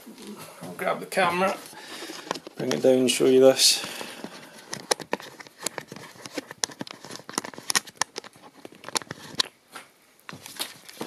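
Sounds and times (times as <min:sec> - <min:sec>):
camera handling clicks and rustles: 0:02.1 - 0:02.7, 0:04.2 - 0:09.6.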